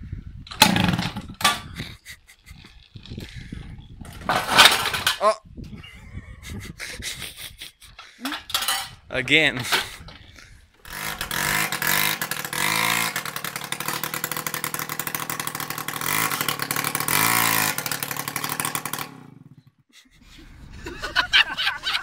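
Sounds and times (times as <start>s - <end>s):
moped engine revving: 0.5s - 2.6s, 10.8s - 19.9s.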